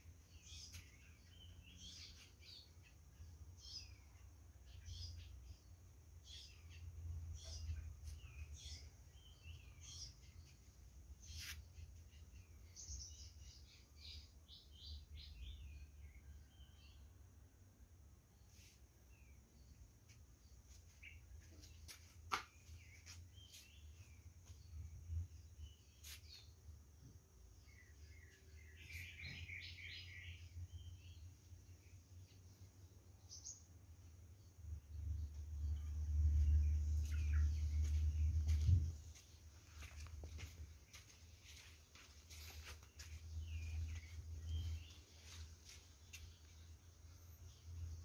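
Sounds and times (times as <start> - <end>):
birds chirping: 18.5 - 48.0.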